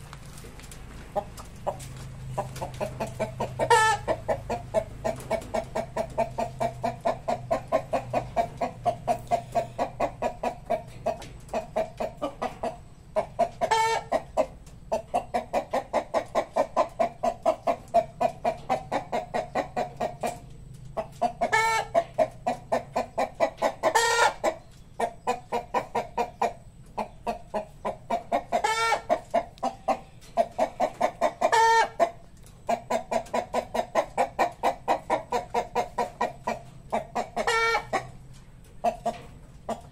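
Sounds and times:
chickens clucking rapidly: 0.0 - 39.9
loud high chicken call: 3.7 - 4.1.

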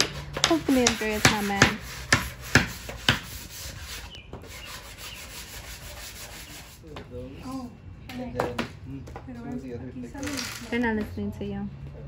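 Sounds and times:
hammer striking wooden frame: 0.0 - 3.4
low rubbing noise: 0.1 - 6.9.

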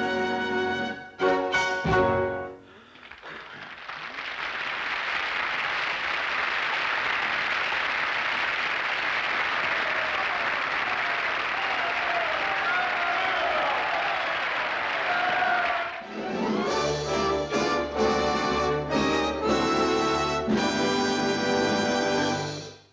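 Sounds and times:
audience applause: 2.7 - 17.1.

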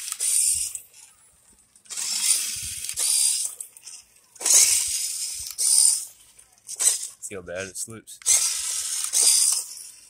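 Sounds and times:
ratcheting gear noise: 0.0 - 0.9, 1.8 - 6.1, 8.2 - 10.0
electric motor and gearbox whirring: 0.0 - 7.2, 8.2 - 10.0.

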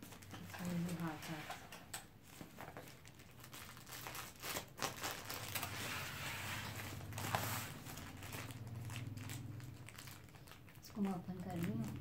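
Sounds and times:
packing tape crackling: 0.0 - 12.0
cardboard tearing: 3.7 - 8.8.

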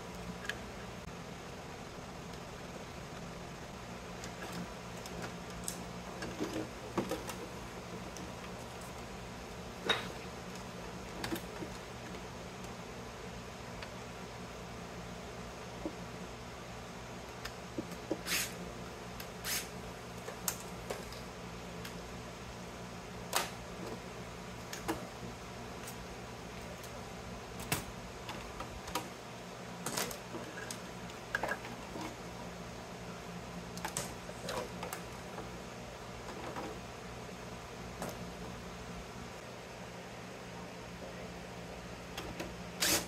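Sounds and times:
steady low hum: 0.0 - 43.0
electrical parts clicking and clattering: 2.2 - 12.8, 25.8 - 32.4.

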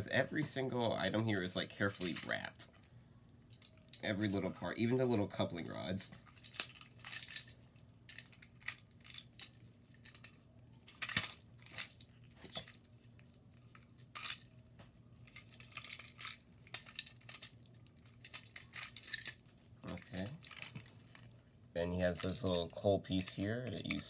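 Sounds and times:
plastic wrap crinkling: 0.7 - 24.0.

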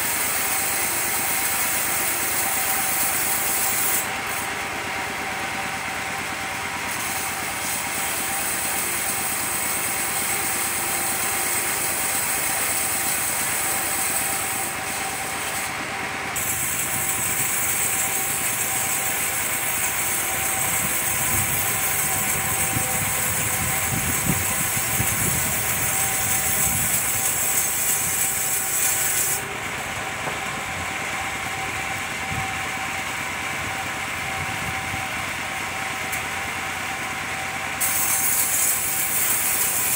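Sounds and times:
saw blade hissing through wood: 0.0 - 29.9, 37.7 - 39.9
circular saw whining: 0.0 - 39.9.

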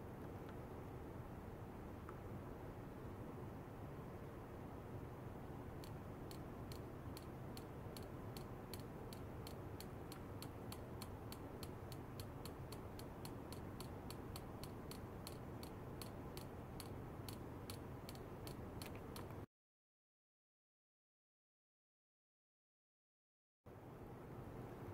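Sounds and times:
low steady hum: 0.0 - 19.5, 23.7 - 24.9
fast ticking clicks: 5.8 - 19.4.

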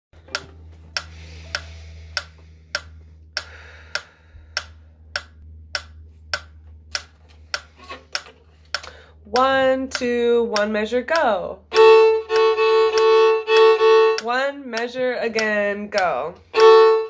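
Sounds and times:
low steady hum: 0.2 - 17.0
metronome clicking: 0.2 - 17.0.

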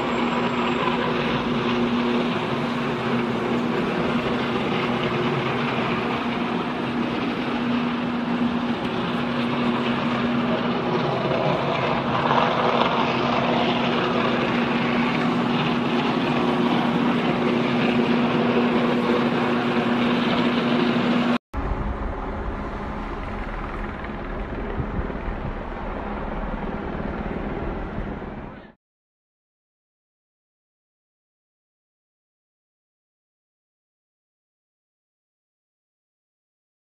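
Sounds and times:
transformer electrical hum: 0.0 - 28.7
dull rumbling noise: 0.0 - 28.8
rushing roar of burning: 0.0 - 28.8.

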